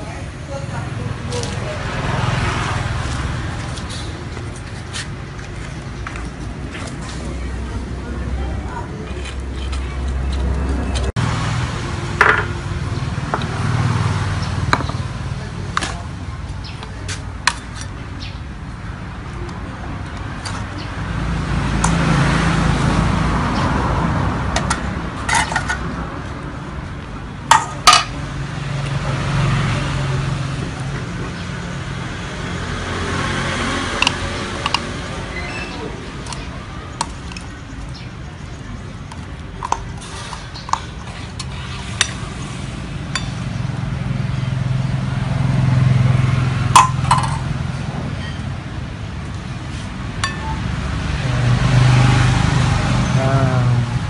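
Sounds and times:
metal utensils clinking on cans: 24.6 - 25.8, 46.8 - 47.5.

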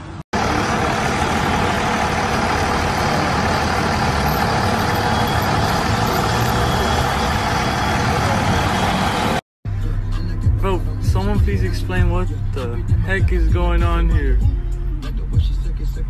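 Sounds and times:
heavy vehicle engine idling: 0.0 - 10.4
street noise: 0.0 - 16.0.

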